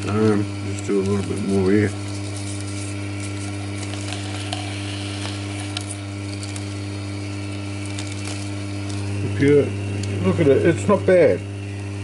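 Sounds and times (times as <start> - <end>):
tobacco shredder motor hum: 0.0 - 12.0.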